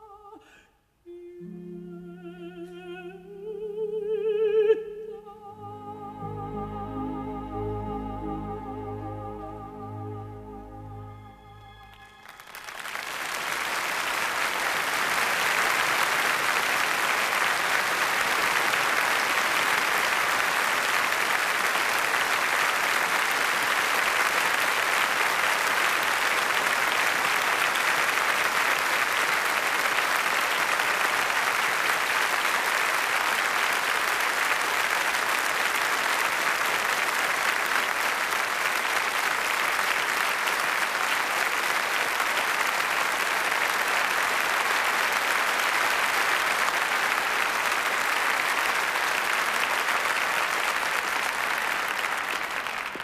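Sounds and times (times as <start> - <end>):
large audience applauding: 11.4 - 53.0.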